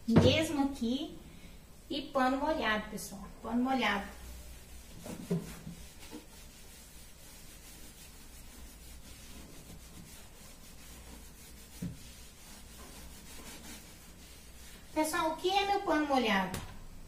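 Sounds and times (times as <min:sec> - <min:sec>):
wet cloth rubbing: 0:04.3 - 0:15.2.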